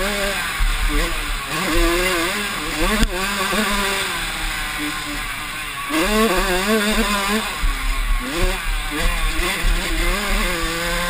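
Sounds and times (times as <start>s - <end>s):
dirt bike engine revving: 0.0s - 11.0s.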